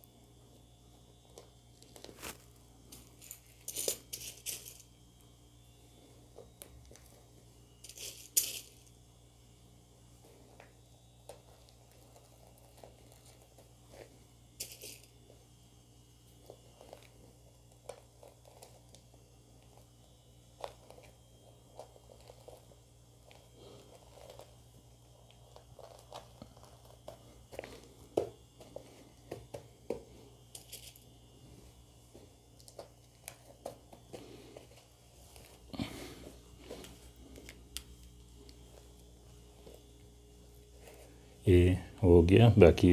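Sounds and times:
steady low hum: 0.0 - 42.9
fabric rustling and crinkling: 1.7 - 4.6.

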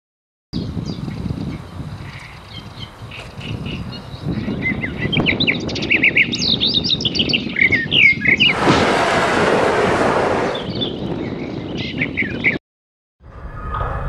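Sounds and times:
small birds chirping: 0.6 - 8.6
rush of hissing noise: 8.5 - 10.6.

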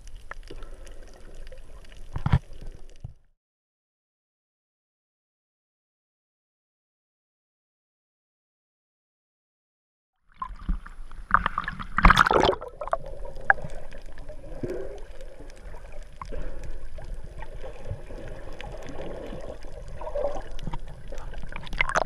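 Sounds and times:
water gurgling underwater: 10.3 - 22.0.

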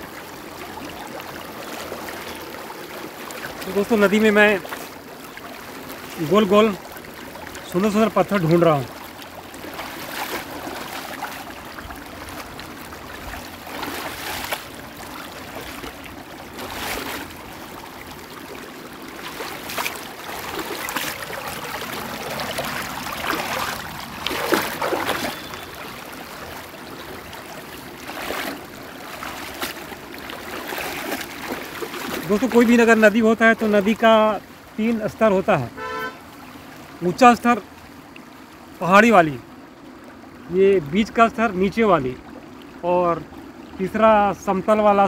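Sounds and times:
river water over pebbles: 0.0 - 45.0
hands splashing in water: 8.8 - 17.5, 19.2 - 26.7, 27.4 - 32.6.

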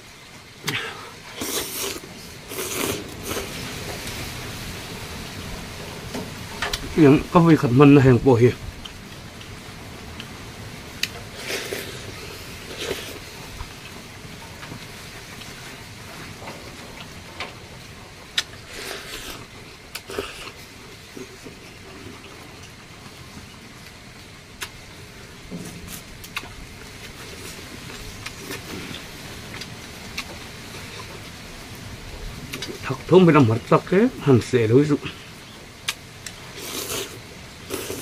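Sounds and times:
steady background hiss: 0.0 - 38.0
man slurping noodles: 0.6 - 3.8, 11.3 - 13.4, 18.4 - 22.5, 36.5 - 38.0
chewing: 0.6 - 4.1, 11.0 - 14.0, 18.3 - 24.0, 25.6 - 31.3, 32.5 - 32.8, 35.1 - 38.0.

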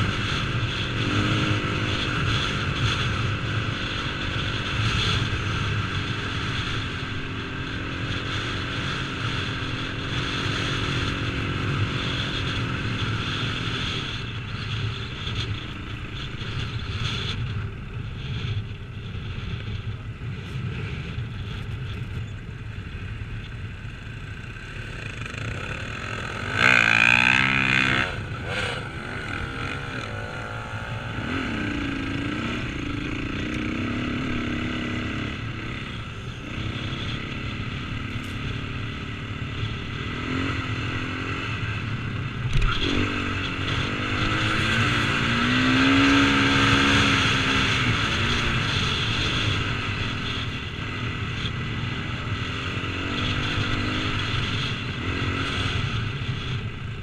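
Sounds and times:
dirt bike engine revving: 24.5 - 56.5.

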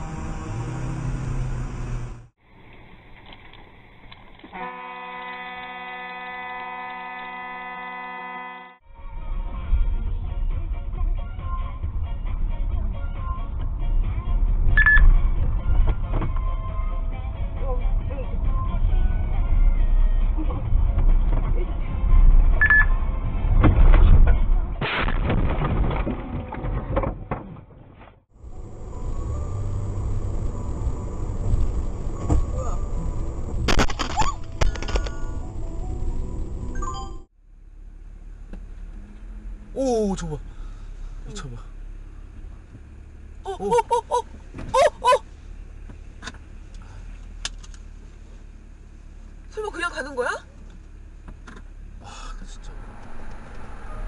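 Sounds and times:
car humming: 0.0 - 4.9, 5.5 - 24.8, 28.3 - 54.0
high beep: 14.8 - 15.1, 22.6 - 23.0
car crash knocks and crunches: 23.5 - 28.2
woman's alarmed cries: 43.4 - 45.3.

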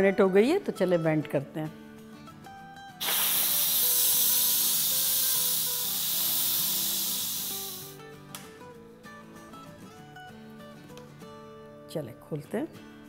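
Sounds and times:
pressure cooker steam hissing: 3.0 - 8.0.

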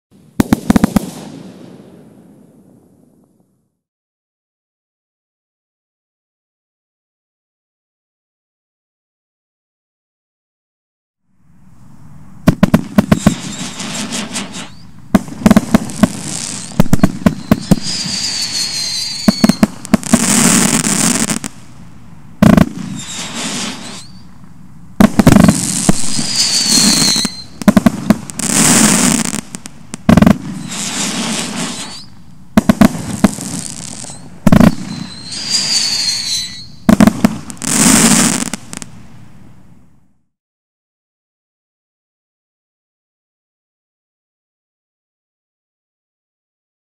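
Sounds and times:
fireworks crackling: 0.2 - 3.2, 12.4 - 39.8
fireworks launch and burst reports: 0.3 - 3.2, 12.5 - 21.5, 25.0 - 38.8
short whistling tones: 13.1 - 14.9, 16.4 - 19.8, 22.9 - 24.3, 26.0 - 27.7, 31.6 - 32.2, 33.8 - 36.9.

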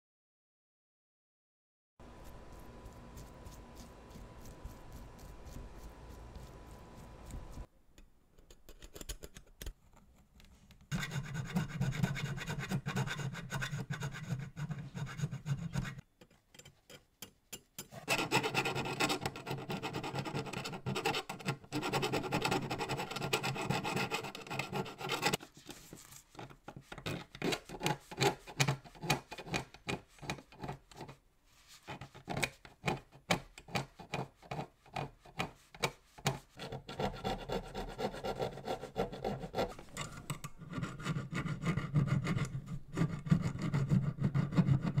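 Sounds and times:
file strokes on metal: 2.1 - 7.7, 10.9 - 16.0, 17.8 - 26.2, 34.1 - 45.0
scraper scraping metal: 17.8 - 31.2.

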